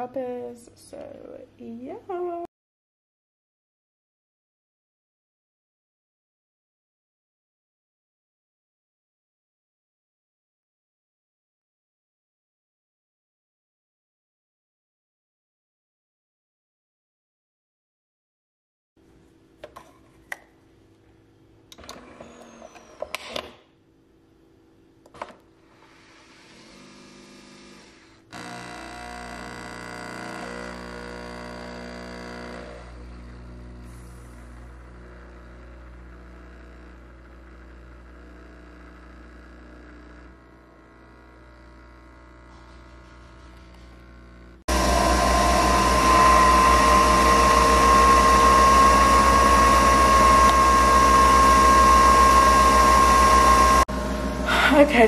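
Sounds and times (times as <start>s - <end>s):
coffee machine whirring and pumping: 21.8s - 23.6s, 25.1s - 55.0s.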